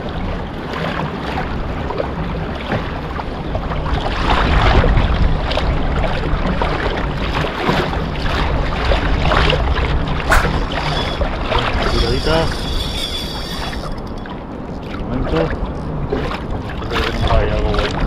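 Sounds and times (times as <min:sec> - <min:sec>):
water sloshing around kayak: 0:00.3 - 0:18.0
wind buffeting microphone: 0:08.3 - 0:12.7.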